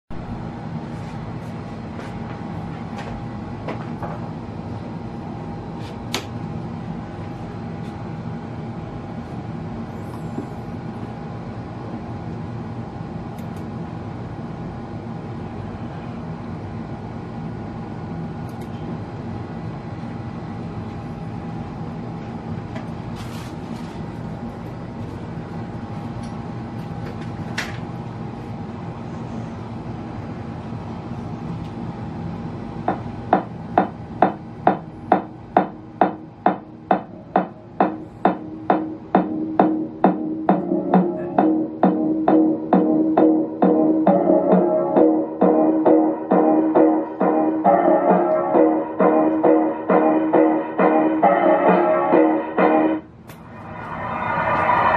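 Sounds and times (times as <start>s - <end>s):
steady hum and rumble: 0.1s - 54.9s
loud pulsing beat over loudspeaker: 32.9s - 53.0s.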